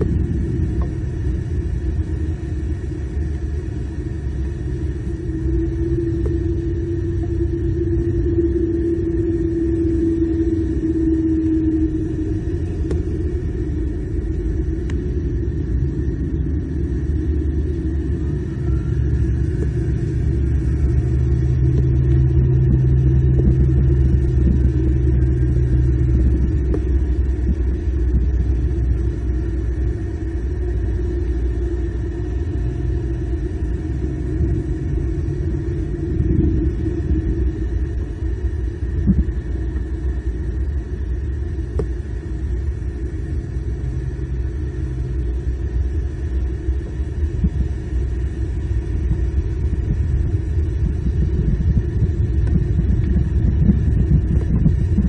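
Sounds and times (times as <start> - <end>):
low hum: 0.0 - 55.0
outdoor background rumble: 0.0 - 55.0.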